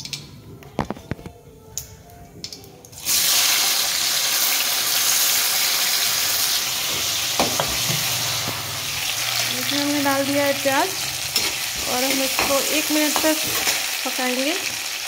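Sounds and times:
onions sizzling in hot oil: 3.0 - 15.0.

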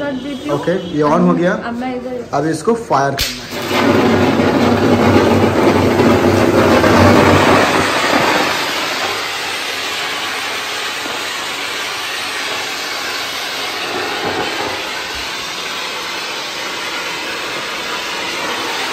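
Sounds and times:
sparkler gun rushing hiss: 3.2 - 18.9.

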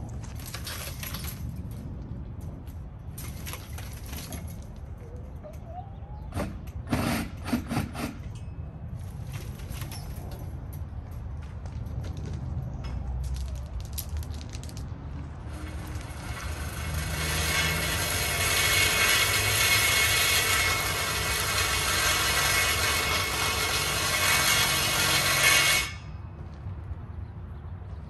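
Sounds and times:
power saw cutting steel tube: 6.4 - 8.3, 15.5 - 26.1.

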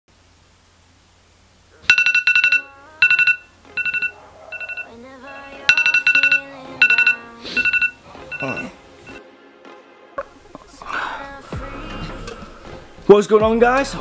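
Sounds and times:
phone alarm beeps: 1.9 - 9.2
soft gliding electronic tones: 1.9 - 9.2.

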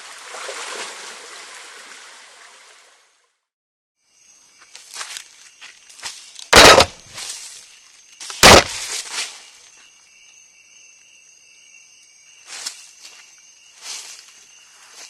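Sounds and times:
faint insect calls: 4.0 - 15.0
loud knocks on camera: 6.6 - 6.9, 8.4 - 8.8.

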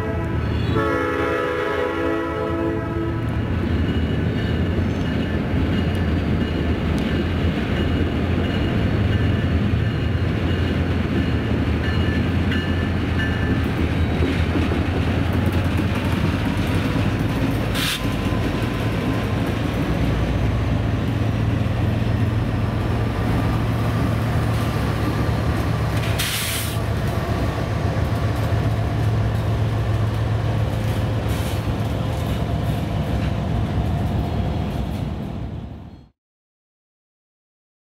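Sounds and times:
wheel and rail noise: 3.1 - 36.0
air hiss bursts: 17.7 - 18.0, 26.0 - 26.9.

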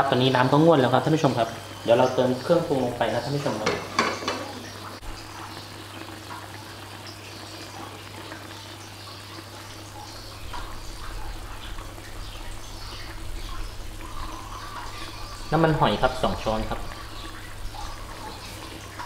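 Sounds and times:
water bubbling in a pan: 0.0 - 19.0
steady low hum: 9.6 - 19.0.

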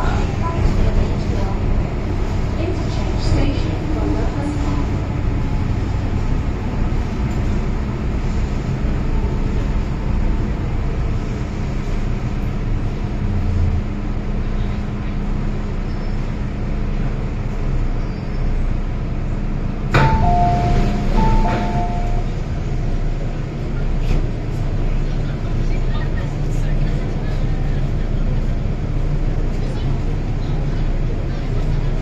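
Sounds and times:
train car hum and rumble: 0.0 - 32.0.

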